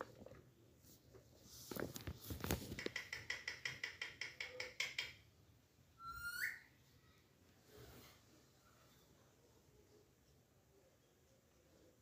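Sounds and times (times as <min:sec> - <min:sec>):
parakeet clicking: 0:02.7 - 0:05.2
parakeet rising whistled call: 0:06.0 - 0:06.7.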